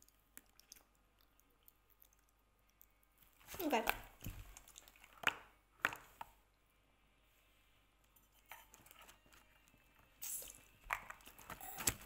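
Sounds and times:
wet mouth clicks and lip smacks: 0:00.0 - 0:03.0.

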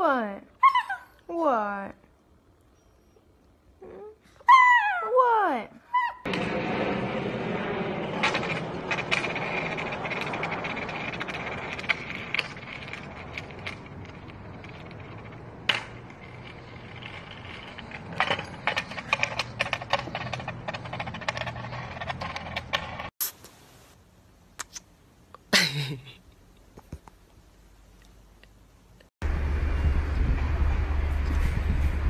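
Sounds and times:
skateboard wheels rolling on concrete: 0:06.2 - 0:23.1.

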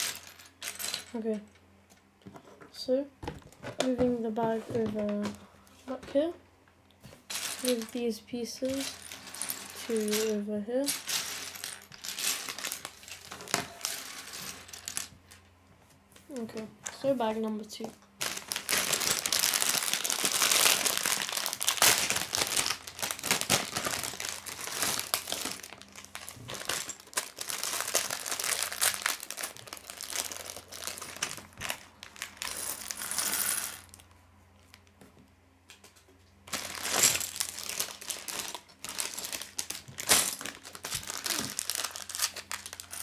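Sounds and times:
plastic bag crinkling: 0:07.3 - 0:15.0, 0:18.1 - 0:33.2, 0:36.5 - 0:43.0
plastic bricks clattering on table: 0:08.6 - 0:15.4.

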